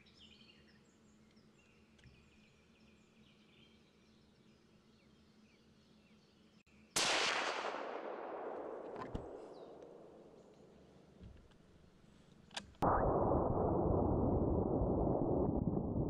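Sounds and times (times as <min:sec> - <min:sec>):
rifle shot echoing: 0:07.0 - 0:10.7.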